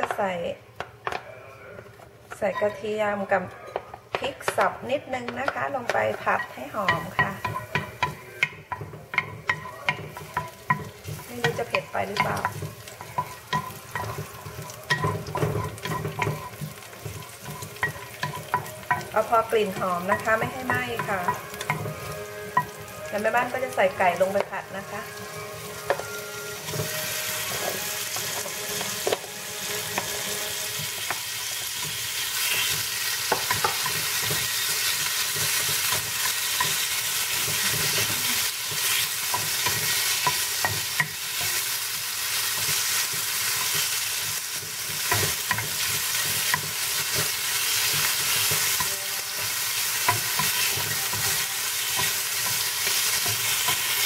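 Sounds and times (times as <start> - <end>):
spatula knocking against pan: 5.3 - 22.8
chicken sizzling in frying pan: 5.3 - 54.0.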